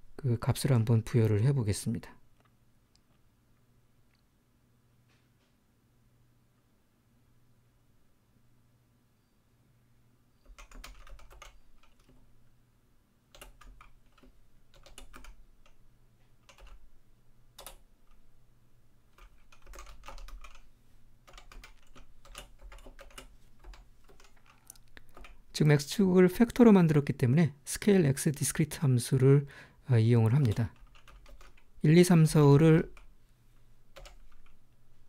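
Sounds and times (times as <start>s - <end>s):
typing on a keyboard: 10.4s - 12.2s, 13.3s - 15.8s, 16.4s - 16.8s, 17.6s - 18.2s, 19.2s - 20.7s, 21.3s - 25.4s, 30.4s - 31.7s, 33.9s - 34.6s.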